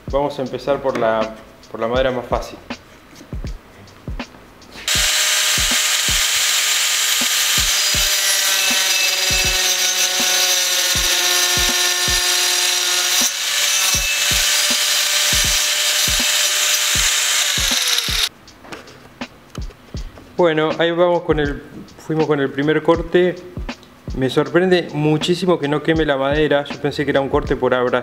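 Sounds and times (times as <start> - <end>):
angle grinder cutting wood: 4.8 - 18.3.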